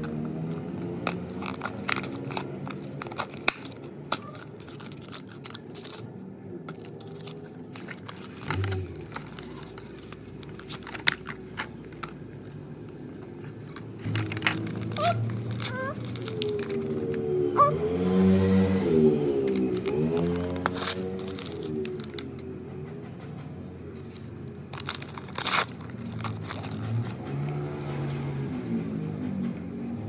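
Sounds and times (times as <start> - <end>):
cardboard box being opened: 14.0 - 17.1, 19.4 - 22.3, 24.0 - 27.2.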